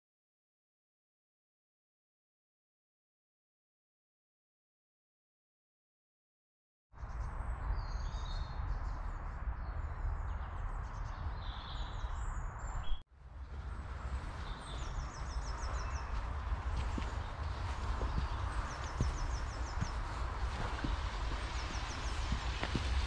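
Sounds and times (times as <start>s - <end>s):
small birds chirping: 7.0s - 23.0s
wind rumble on microphone: 7.0s - 23.0s.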